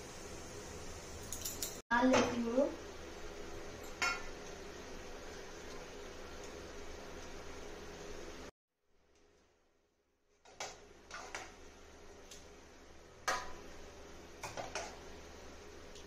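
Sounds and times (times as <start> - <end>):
spoon clinking and scraping on pans: 1.2 - 1.8, 3.8 - 4.3, 10.4 - 11.6, 14.4 - 15.0.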